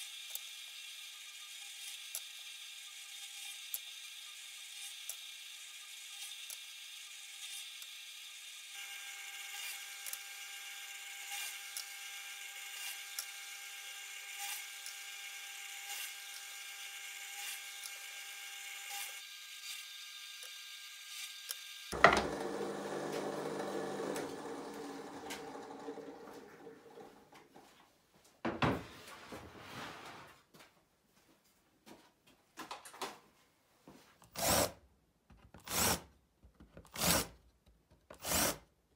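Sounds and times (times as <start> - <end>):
drill bit cutting wood: 6.0 - 27.0, 34.4 - 34.7, 38.2 - 38.6
drill press motor whine: 14.9 - 27.3.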